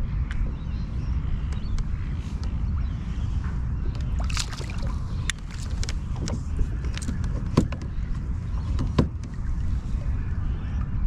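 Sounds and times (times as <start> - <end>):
wind on microphone: 0.0 - 11.0
fish splashing in water: 4.2 - 5.9
sharp knocks and clicks: 5.3 - 8.0.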